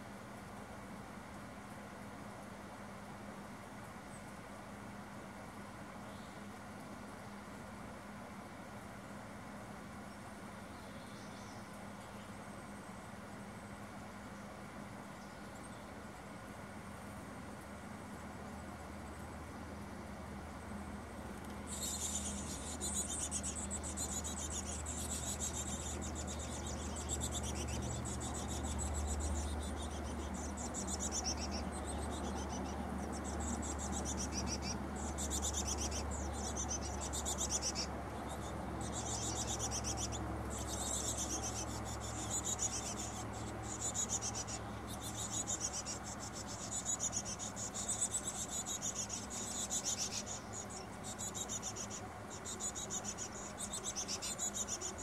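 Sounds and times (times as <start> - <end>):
nestlings begging chatter: 20.4 - 55.0.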